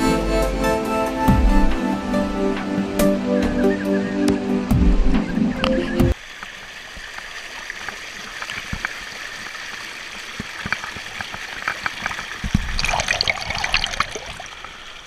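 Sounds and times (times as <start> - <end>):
stream water trickling over rocks: 5.6 - 15.0
small water splashes: 6.1 - 15.0.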